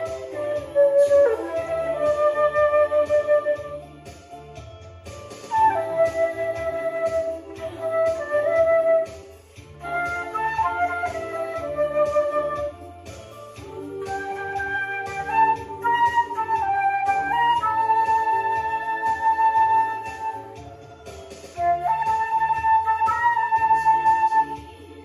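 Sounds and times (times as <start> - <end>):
flute playing slow melody: 0.0 - 4.1, 5.5 - 13.1, 13.7 - 20.7, 21.5 - 24.9
accompaniment track with bass beat: 0.0 - 25.0.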